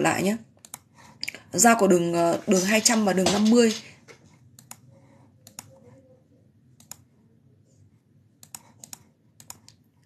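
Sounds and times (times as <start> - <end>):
computer mouse clicks: 0.6 - 1.4, 4.5 - 5.8, 6.8 - 7.1, 8.4 - 9.9.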